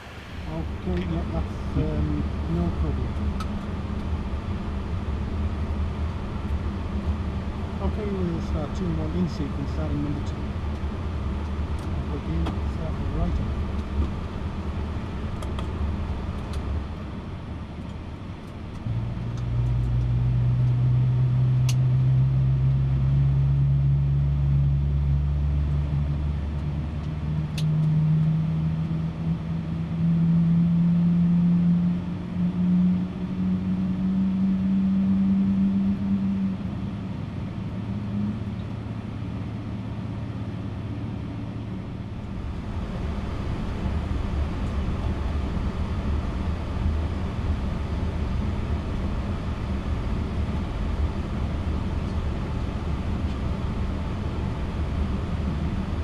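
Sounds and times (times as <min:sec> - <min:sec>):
jet engine spooling up: 0:00.0 - 0:03.2.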